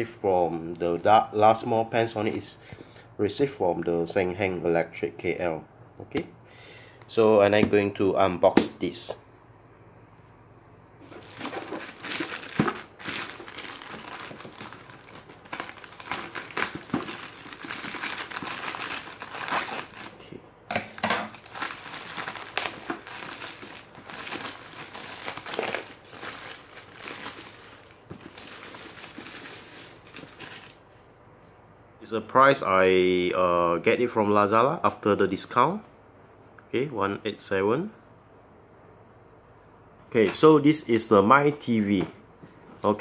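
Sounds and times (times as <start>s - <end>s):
plastic pouch crinkling: 11.0s - 30.8s
plastic ripping: 11.0s - 30.8s.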